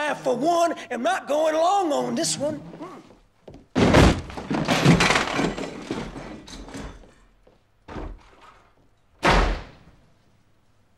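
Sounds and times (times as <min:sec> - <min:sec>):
clatter of things knocked about: 0:03.7 - 0:08.7
door slamming: 0:03.8 - 0:05.6, 0:09.2 - 0:10.0.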